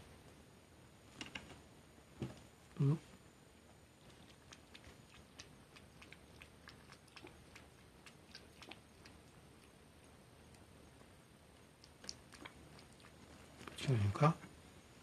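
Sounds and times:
cat lapping water: 4.1 - 11.0, 11.6 - 13.4.

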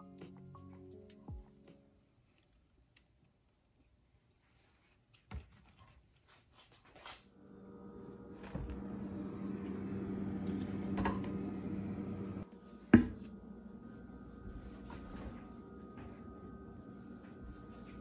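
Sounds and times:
freezer humming: 7.3 - 18.0.

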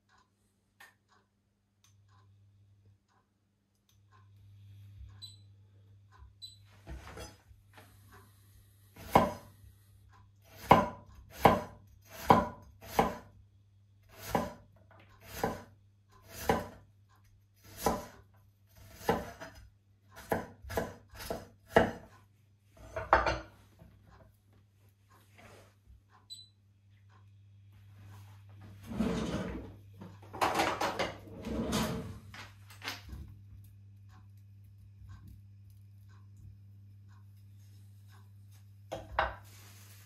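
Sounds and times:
knife chopping on cutting board: 9.0 - 9.5, 10.5 - 13.3, 14.1 - 14.6, 15.2 - 16.8, 17.6 - 18.2, 18.8 - 19.6, 20.2 - 22.1.

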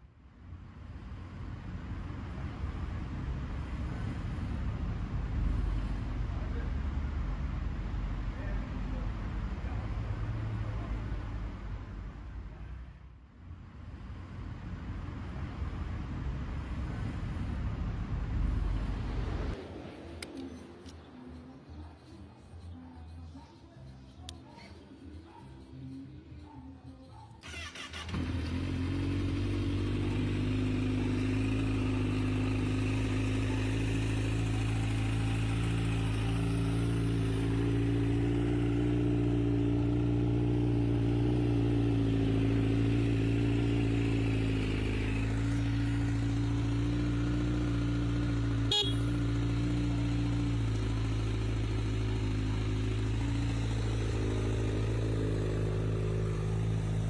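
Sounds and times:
motorcycle engine idling: 21.2 - 57.0.

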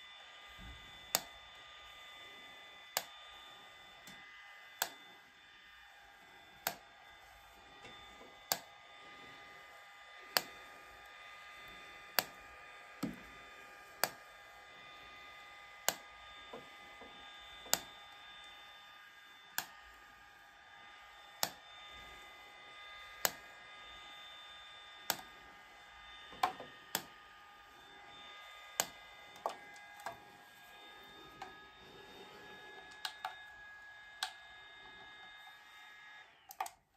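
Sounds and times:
device flash clicks: 1.1 - 1.4, 2.9 - 3.2, 4.8 - 5.0, 6.6 - 6.9, 7.8 - 8.8, 10.3 - 10.6, 12.1 - 12.4, 13.0 - 14.3, 15.8 - 16.6, 17.6 - 18.6, 21.4 - 21.6, 23.2 - 23.5, 25.0 - 25.4, 26.3 - 27.2, 28.7 - 30.2, 32.8 - 33.4, 34.2 - 34.5.

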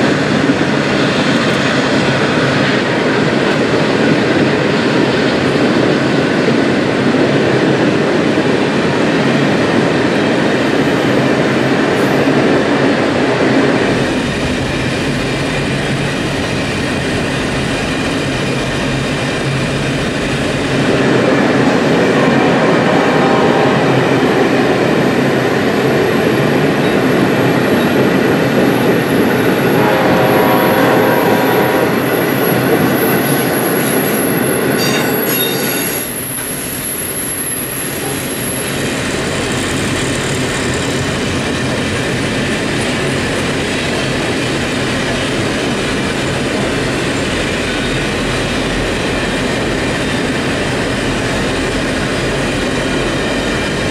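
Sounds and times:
train wheels rumbling over rails: 0.0 - 53.9
high wheel squeal: 31.9 - 38.8.

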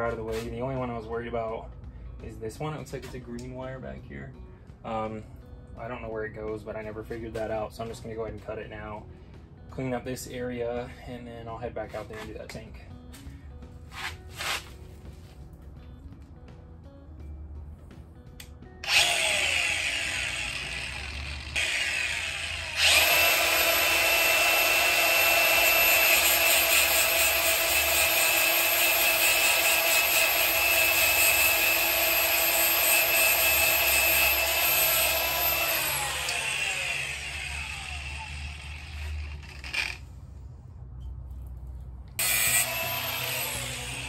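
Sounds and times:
power tool motor whining: 18.8 - 40.0, 42.2 - 44.0.

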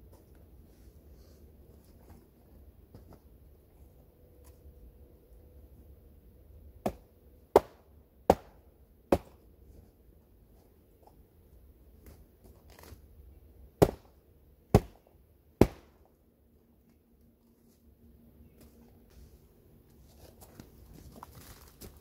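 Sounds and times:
hatchet chopping wood: 6.8 - 9.4, 13.8 - 15.0, 15.6 - 16.0.

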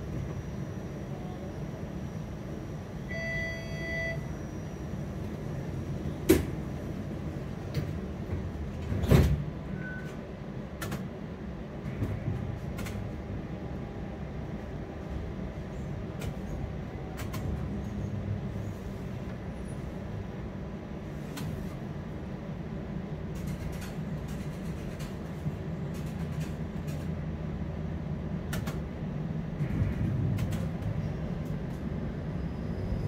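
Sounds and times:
streetcar rumbling: 0.0 - 33.0
pitched beep: 3.1 - 4.3.

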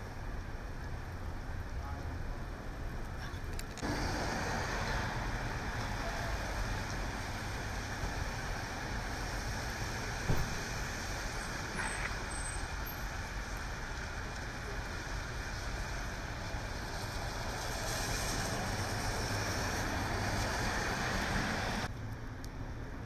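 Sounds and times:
traffic engine rumble: 0.0 - 23.0
heavy rain hiss: 3.8 - 21.9.

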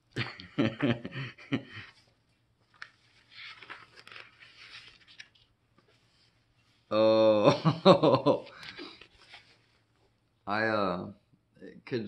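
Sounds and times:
paper rustling: 1.9 - 6.9, 8.2 - 9.9
man's voice: 6.9 - 7.8.

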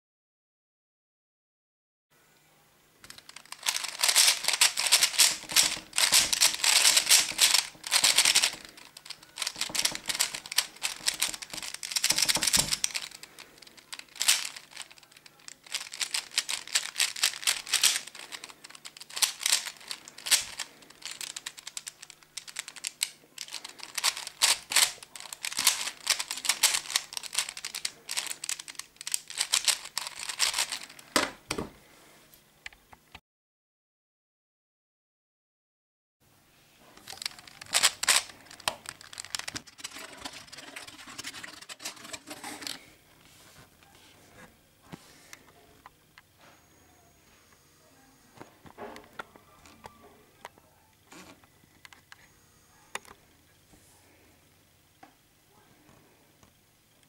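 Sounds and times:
plastic puzzle cube clicking: 3.0 - 31.0, 37.0 - 42.8.

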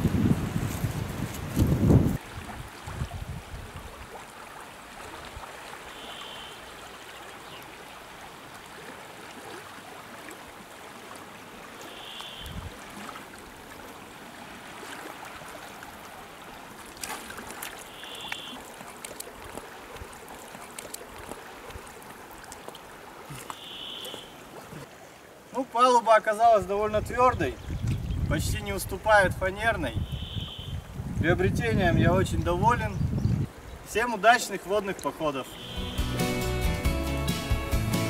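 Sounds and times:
river water flowing: 0.0 - 29.0, 33.5 - 38.0
faint sharp clicks: 17.0 - 19.7
short high chirp: 35.6 - 36.2.

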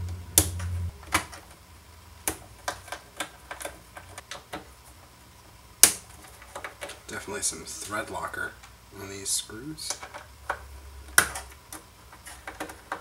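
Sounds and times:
low hum: 0.0 - 1.0.

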